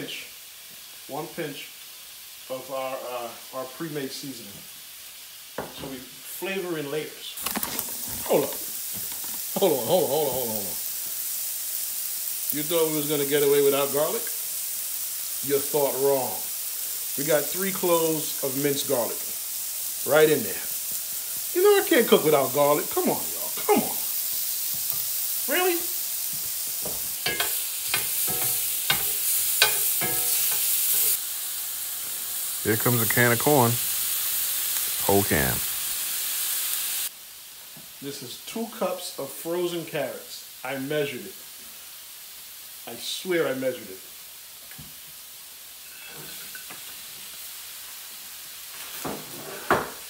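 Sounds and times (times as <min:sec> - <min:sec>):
mushrooms sizzling in oil: 0:00.0 - 0:50.0
metal spoon scraping pan: 0:27.2 - 0:31.1.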